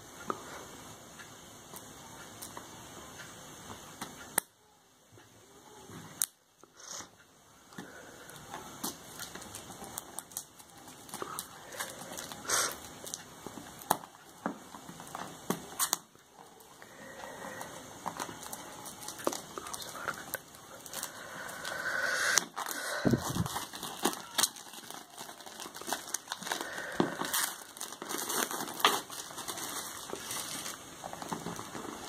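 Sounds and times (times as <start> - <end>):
plastic shrink-wrap tearing and crinkling: 8.8 - 13.2, 18.0 - 32.0.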